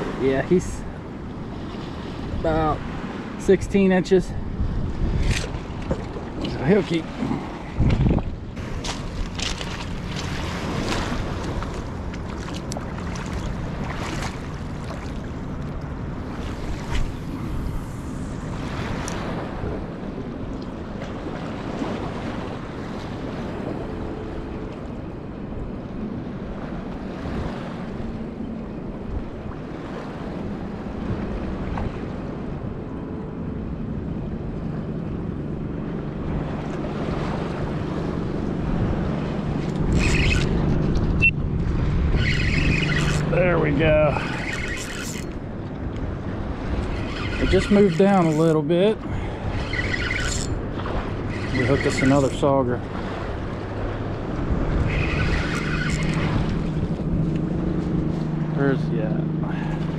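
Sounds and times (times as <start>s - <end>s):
wind buffeting microphone: 0.0s - 59.9s
river rushing: 35.9s - 59.9s.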